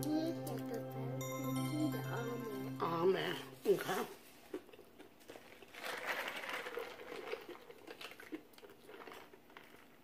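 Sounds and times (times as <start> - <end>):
crispy chicken chewing: 4.5 - 10.0.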